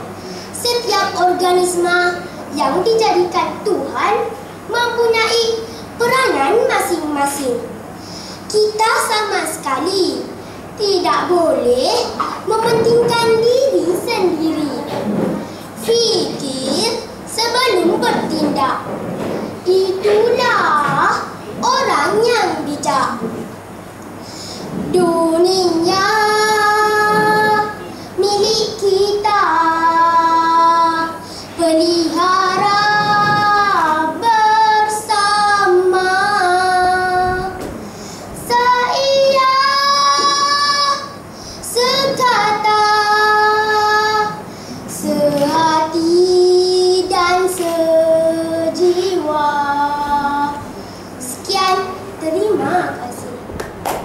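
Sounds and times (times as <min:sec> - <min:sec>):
girl singing into microphone: 0:00.0 - 0:23.6, 0:24.2 - 0:53.5.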